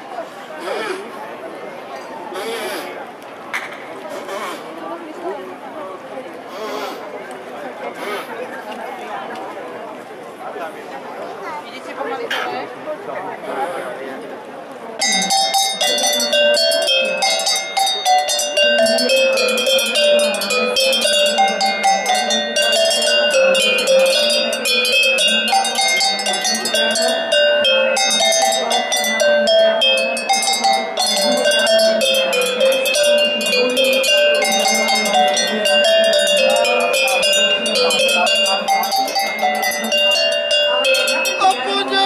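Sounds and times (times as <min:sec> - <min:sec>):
cowbells playing melody: 0:15.0 - 0:42.0.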